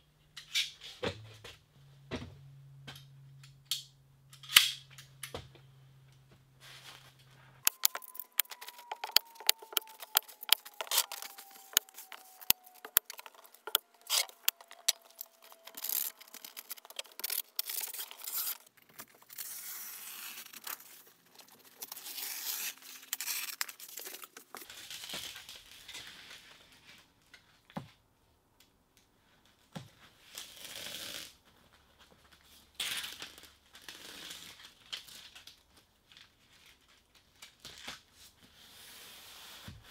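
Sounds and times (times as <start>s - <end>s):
tape pulled off a roll: 6.6s - 26.5s
plastic sheeting crinkling: 6.6s - 26.9s.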